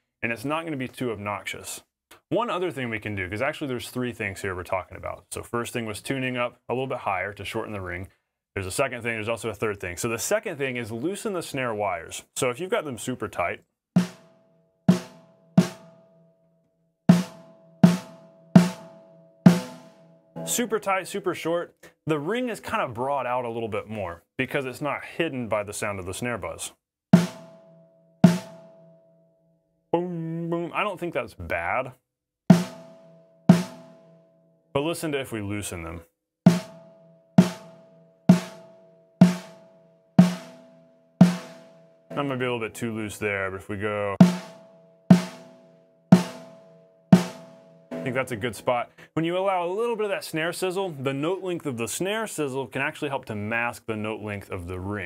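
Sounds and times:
snare drum hits with buzz: 19.5 - 19.9, 27.2 - 27.5, 28.3 - 28.6, 32.5 - 33.9, 37.4 - 38.6, 40.2 - 42.2, 44.2 - 45.5, 46.2 - 46.6, 47.2 - 48.2
snare drum hits with ringing: 44.2 - 45.4.

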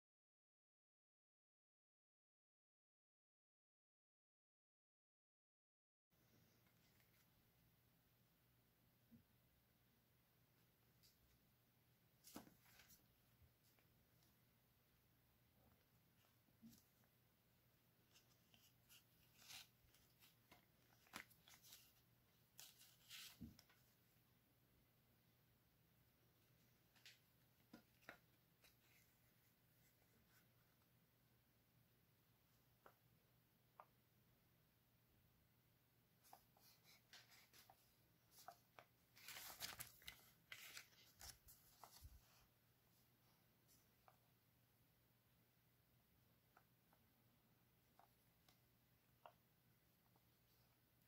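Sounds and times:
paper rustling: 12.2 - 14.3, 18.0 - 23.9, 36.2 - 42.5.

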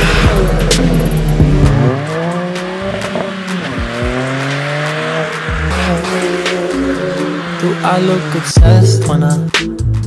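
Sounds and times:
car engine revving under load: 0.0 - 9.8
music playing: 0.0 - 10.0.

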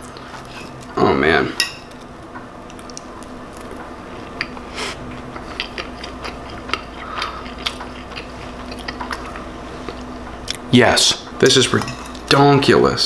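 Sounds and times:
person chewing: 2.6 - 10.7.

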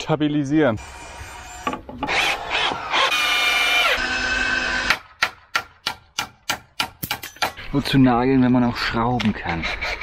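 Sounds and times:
cordless drill whining: 0.8 - 4.9.

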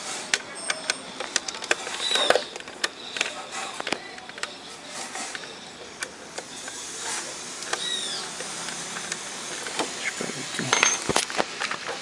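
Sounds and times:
rod scraping in antenna: 4.8 - 5.5
steady hiss: 4.8 - 12.0.

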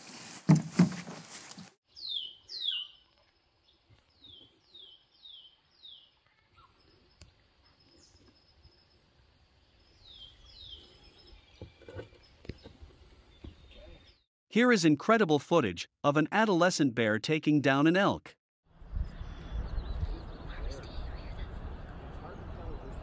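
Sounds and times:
bird chirping: 1.9 - 14.2, 19.0 - 21.4.

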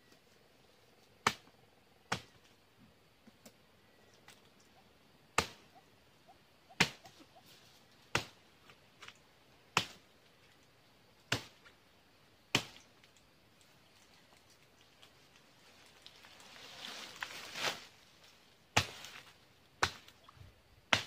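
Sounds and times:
machete chopping palm stalks: 1.2 - 1.5, 2.1 - 2.4, 5.4 - 5.7, 6.7 - 7.2, 8.1 - 8.8, 9.7 - 10.0, 11.3 - 11.7, 12.5 - 12.9, 18.7 - 20.2.

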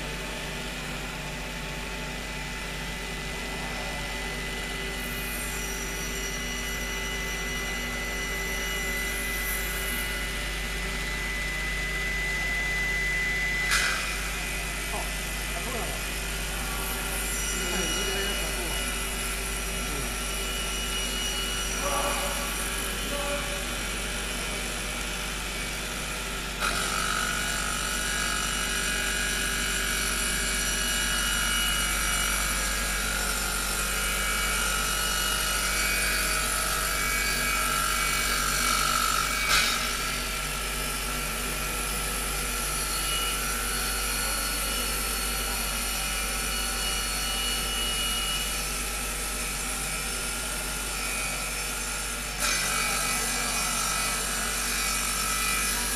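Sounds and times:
saw blade cutting wood: 13.5 - 24.1, 26.6 - 55.9.

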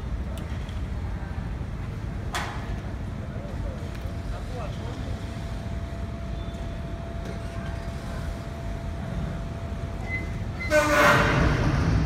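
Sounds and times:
low outdoor rumble: 0.0 - 12.0
loud horn blast: 10.6 - 11.9.

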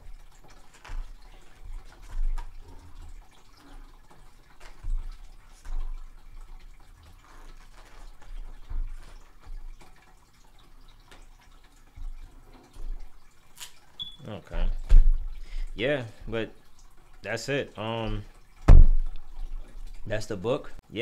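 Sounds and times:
book pages turning: 0.6 - 2.6, 7.1 - 9.3
faint low thumps: 18.1 - 19.2.

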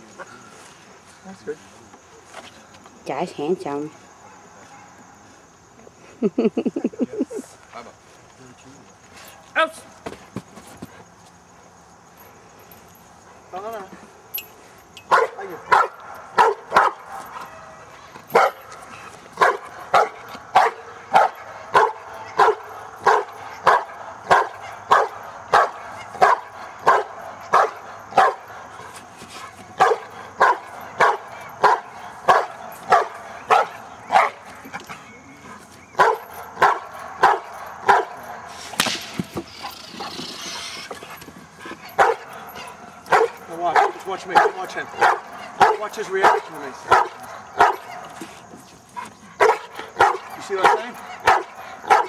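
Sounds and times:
dog barking: 4.2 - 5.0, 15.1 - 18.8, 19.4 - 28.7, 29.8 - 34.6, 35.9 - 38.5, 41.9 - 48.3, 49.4 - 52.0
sharp snap: 38.6 - 39.2.

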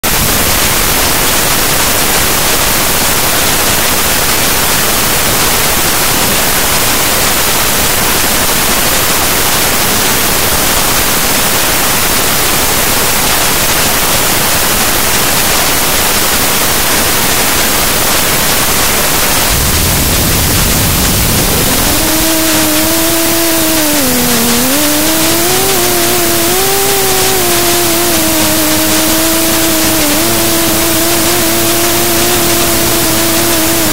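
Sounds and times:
static hiss: 0.0 - 33.9
drone motors whining: 19.0 - 33.9
low rumble: 19.4 - 29.7.

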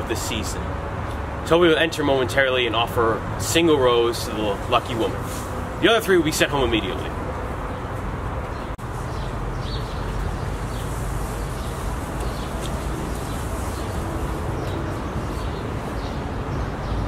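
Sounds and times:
birds chirping: 3.9 - 17.0.

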